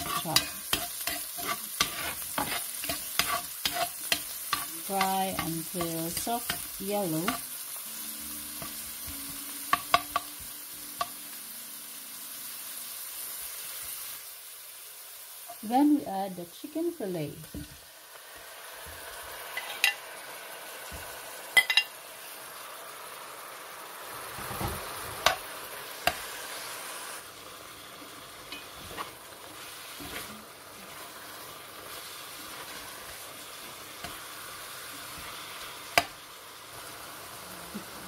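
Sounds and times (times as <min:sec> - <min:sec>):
chicken sizzling in hot oil: 0:00.0 - 0:38.0
spoon clinking against pan: 0:21.6 - 0:21.9.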